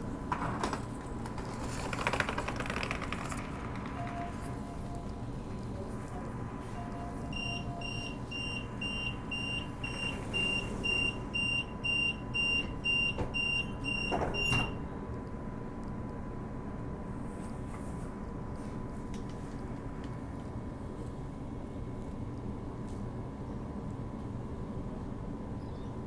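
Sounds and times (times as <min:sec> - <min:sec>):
train door warning beeps: 0:04.0 - 0:05.9, 0:06.6 - 0:14.8.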